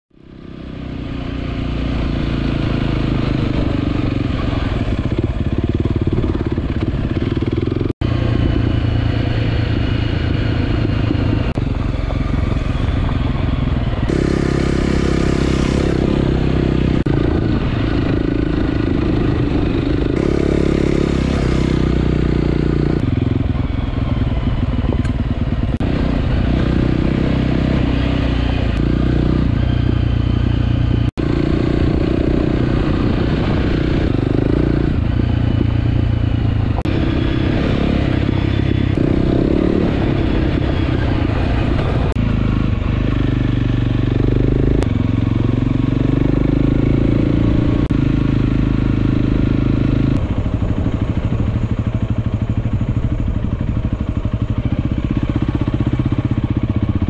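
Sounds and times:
motorcycle engine running steadily: 0.1s - 57.0s.

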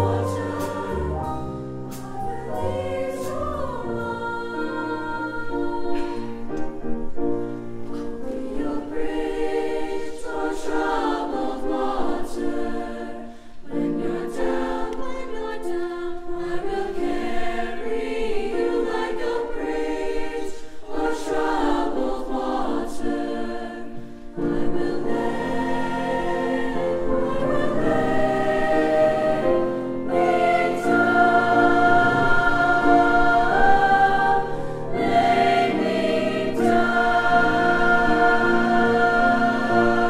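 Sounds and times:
mixed choir singing: 0.0s - 7.0s, 7.9s - 40.0s.

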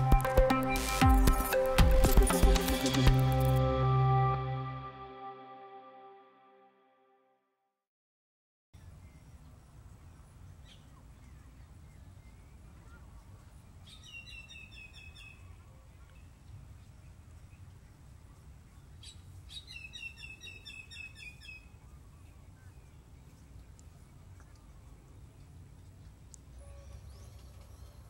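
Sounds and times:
low outdoor rumble: 21.6s - 28.0s.

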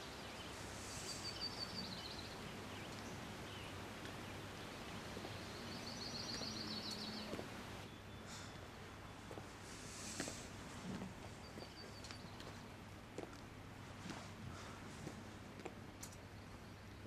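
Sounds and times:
faint background noise: 0.0s - 17.0s
songbird trilling: 1.1s - 8.2s.

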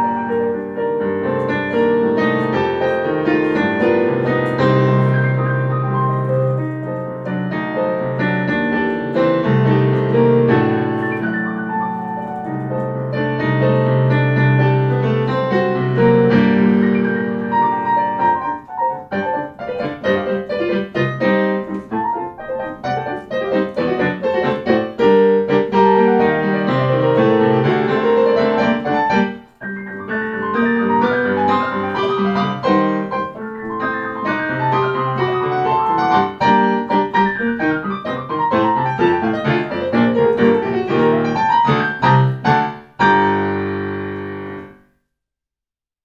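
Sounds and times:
solo piano piece: 0.0s - 45.0s.

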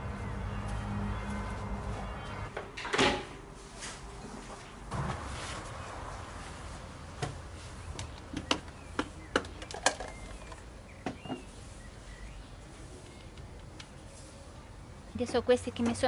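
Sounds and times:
birds chirping faintly: 7.2s - 16.0s.

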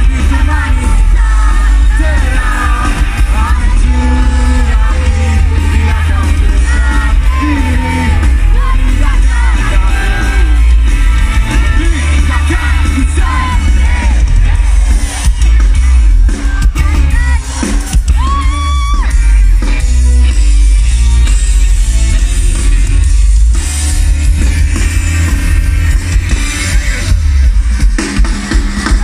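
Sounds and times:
person singing: 0.0s - 14.5s
heavy bass: 0.0s - 29.0s
live rock band playing: 0.0s - 29.0s.

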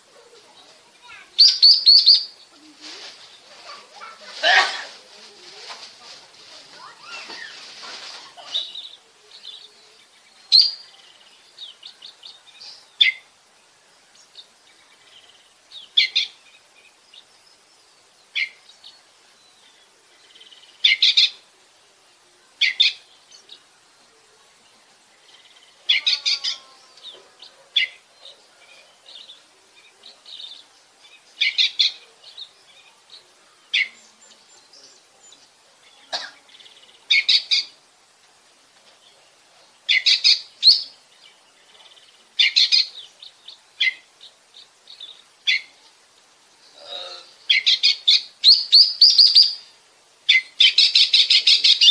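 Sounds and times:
soft bird twittering: 0.2s - 4.2s
bird singing high phrases: 0.4s - 4.2s, 8.4s - 13.3s, 25.2s - 37.8s, 39.9s - 45.9s, 46.6s - 51.9s.

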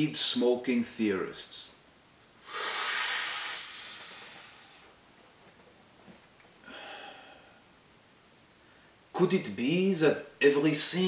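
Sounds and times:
soft breath out: 6.6s - 7.7s.

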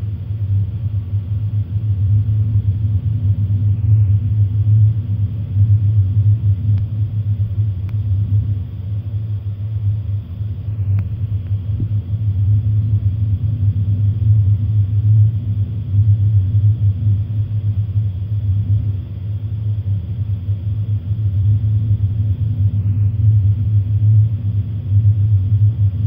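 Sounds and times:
deep rumble: 0.0s - 26.0s
faint ticks: 6.7s - 6.9s, 7.8s - 8.1s, 10.9s - 12.0s.

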